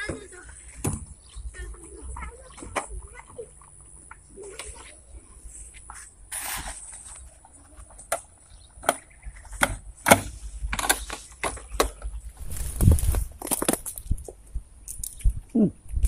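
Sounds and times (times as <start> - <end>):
brushing through grass: 12.4 - 13.4.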